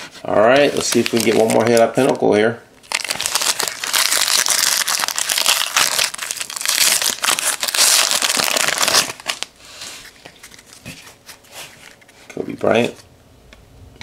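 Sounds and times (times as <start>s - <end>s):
foil wrapper crinkling: 0.6s - 2.2s, 2.8s - 9.5s.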